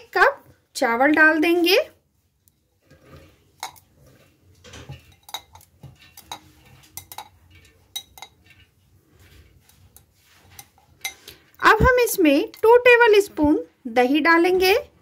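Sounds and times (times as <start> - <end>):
glass bowl clinking on metal jar: 4.8 - 8.6.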